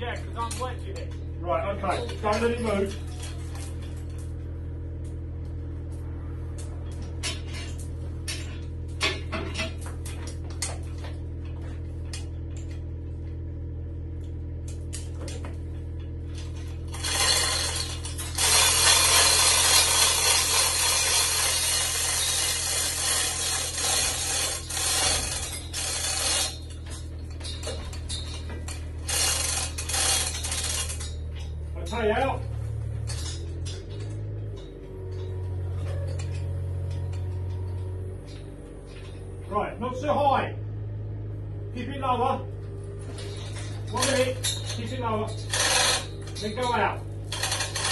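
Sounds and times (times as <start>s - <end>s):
steady low hum: 0.0s - 47.9s
chain clinking and rattling: 14.9s - 39.4s, 42.9s - 47.9s.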